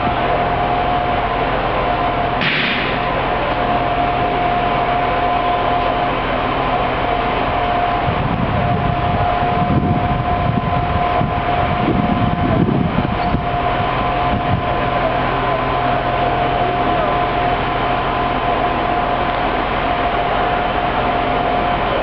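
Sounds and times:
diesel railbus engine running: 0.0 - 22.0
high engine whine: 0.0 - 22.0.

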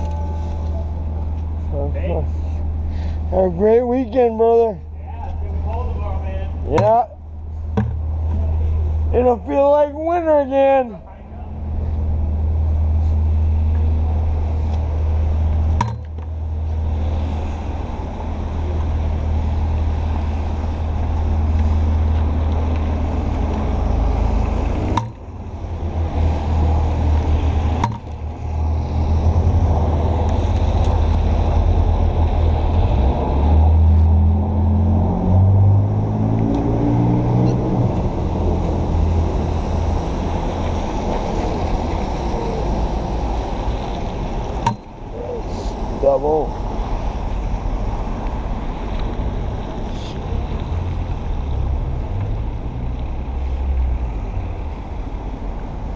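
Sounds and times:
low engine rumble: 0.0 - 55.7
city street traffic: 0.0 - 55.9
vehicle accelerating away: 31.4 - 40.0.

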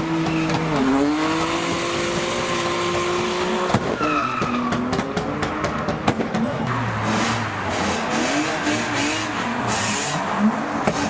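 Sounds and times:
car engine revving: 0.0 - 11.0
tyre squeal: 3.8 - 4.9.

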